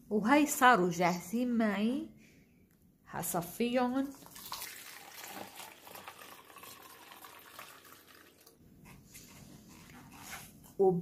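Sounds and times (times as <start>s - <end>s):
liquid pouring trickle: 4.1s - 8.6s.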